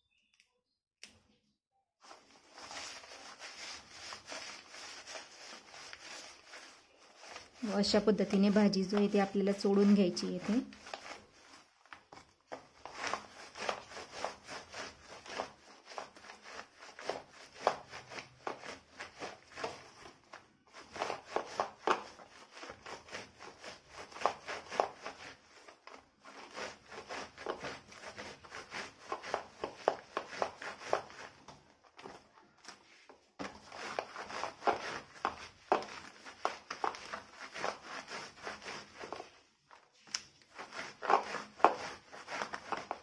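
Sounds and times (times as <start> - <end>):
hands rubbing leaves on woven tray: 2.0 - 43.0.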